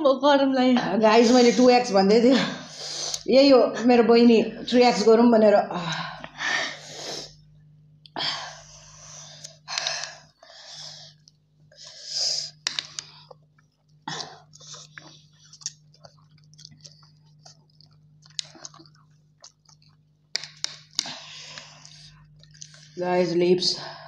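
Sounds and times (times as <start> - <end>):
steady low hum: 0.0 - 24.0
wet mouth clicks: 12.4 - 21.1
chewing: 12.6 - 22.9.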